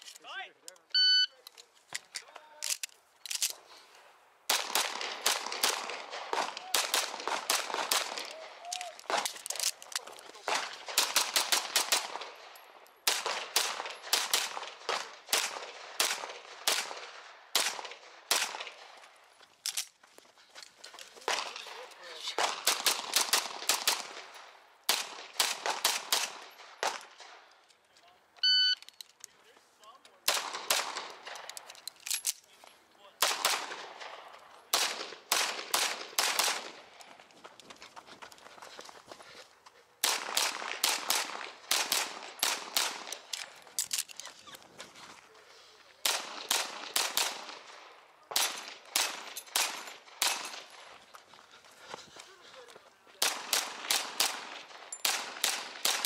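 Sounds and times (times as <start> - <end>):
rapid pistol shots: 4.5 - 8.3, 10.5 - 12.4, 13.1 - 18.9, 22.4 - 24.3, 24.9 - 27.3, 30.3 - 31.4, 33.2 - 36.8, 40.0 - 43.2, 46.0 - 50.8, 53.2 - 56.0.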